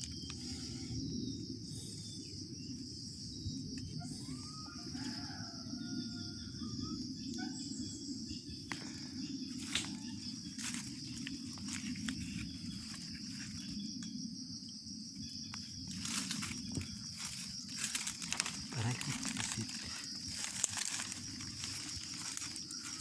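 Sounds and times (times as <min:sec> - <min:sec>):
insects droning: 0:00.0 - 0:23.0
footsteps rustling leaf litter: 0:10.6 - 0:13.1, 0:15.9 - 0:23.0.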